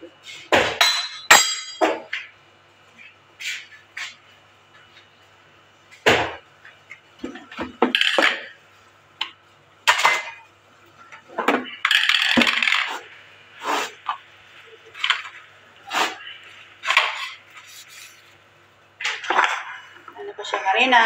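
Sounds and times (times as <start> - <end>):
dishes and utensils clattering: 0.6 - 2.3, 9.9 - 13.1.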